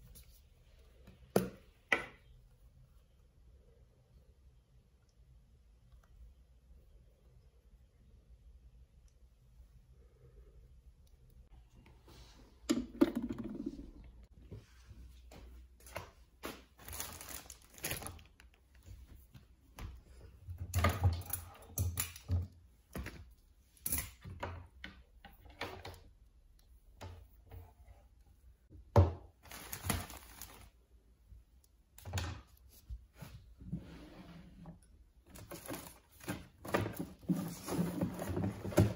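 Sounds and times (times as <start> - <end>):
objects handled and set down: 35.3 - 38.9.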